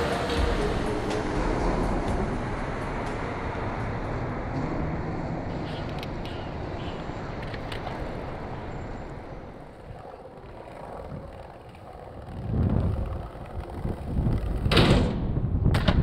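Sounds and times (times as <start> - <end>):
skateboard wheels rolling on stone: 3.8 - 16.0
skateboard clacks: 5.7 - 16.0.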